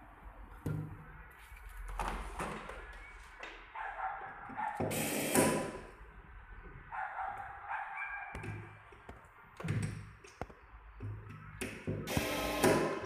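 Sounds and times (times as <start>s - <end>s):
electric screwdriver whirring: 12.1s - 13.0s.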